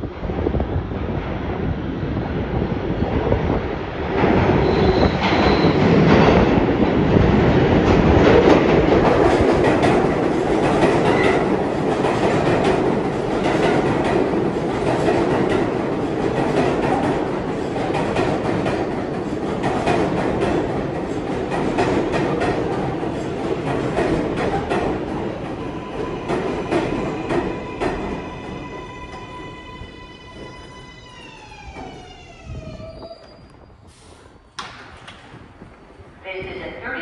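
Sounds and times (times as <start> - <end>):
subway train wheels clattering: 0.0 - 37.0
high wheel squeals: 4.6 - 5.8, 27.6 - 34.4.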